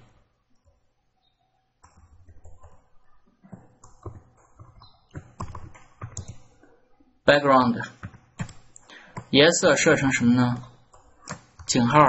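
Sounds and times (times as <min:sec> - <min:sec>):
computer keyboard typing: 0:01.8 - 0:06.7, 0:07.6 - 0:12.0.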